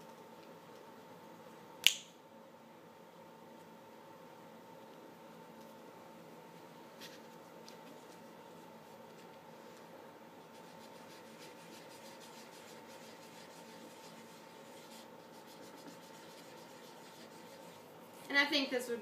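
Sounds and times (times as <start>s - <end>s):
faint electrical hum: 0.0s - 19.0s
marker scratching on paper: 10.5s - 17.9s.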